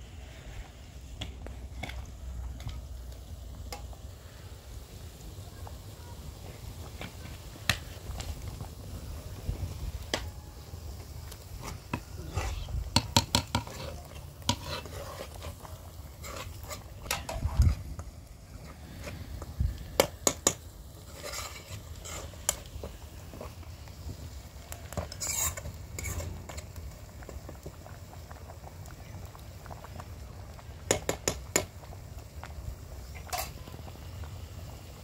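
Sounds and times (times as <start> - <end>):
faint sizzle: 0.0 - 35.0
metal spoon scraping a pan: 11.6 - 17.8, 21.0 - 23.5, 24.9 - 26.6, 33.2 - 33.6.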